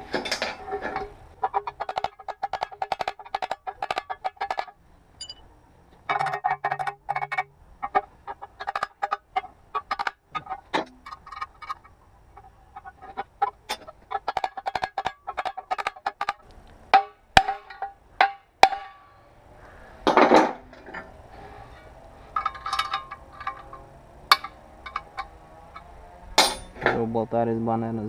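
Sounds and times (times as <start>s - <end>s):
metal scraping: 0.0s - 27.1s
metal clinks and taps: 1.6s - 5.5s, 22.3s - 26.9s.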